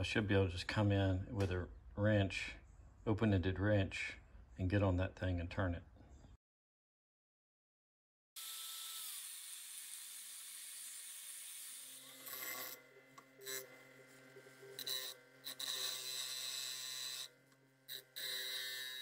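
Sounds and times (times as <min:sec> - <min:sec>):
angle grinder cutting steel: 0:08.4 - 0:19.0
bench grinder humming: 0:08.4 - 0:19.0
metal grinding on wheel: 0:11.9 - 0:12.8, 0:14.7 - 0:17.3.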